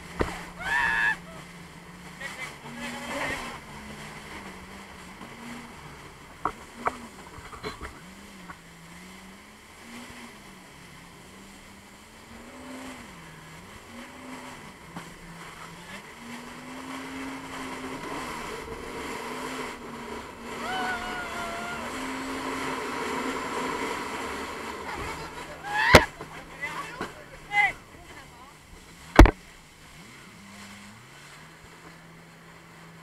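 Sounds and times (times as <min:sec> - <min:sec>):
jet ski engine running: 0:00.0 - 0:33.0
water rushing: 0:00.0 - 0:33.0.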